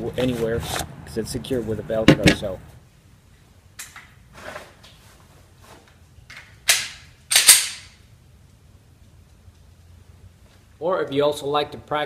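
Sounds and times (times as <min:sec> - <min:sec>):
handgun sharp clacks: 0:06.7 - 0:08.0.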